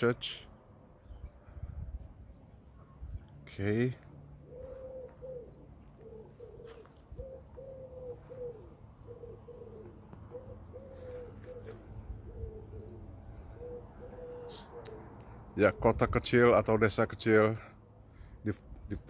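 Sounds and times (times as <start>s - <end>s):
pigeon cooing: 4.4s - 15.9s.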